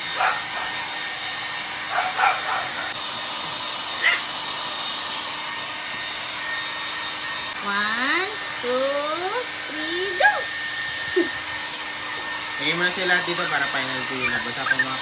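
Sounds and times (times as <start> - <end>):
hair dryer blowing: 0.0 - 15.0
puppy yipping: 1.9 - 2.9, 13.5 - 15.0.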